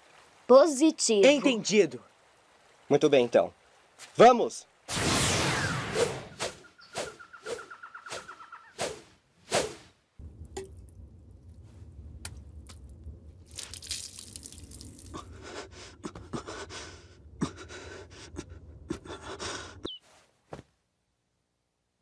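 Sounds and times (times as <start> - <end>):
quick whooshes: 4.9 - 10.0
steady low hum: 10.2 - 13.6
water dripping from wrung cloth: 10.2 - 19.2.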